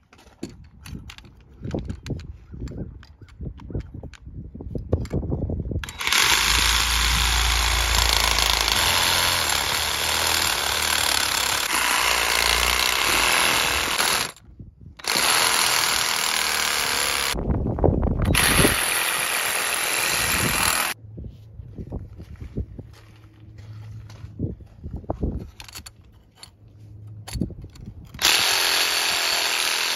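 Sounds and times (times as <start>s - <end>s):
reciprocating saw cutting metal: 5.8s - 14.4s, 18.3s - 21.0s, 28.2s - 29.9s.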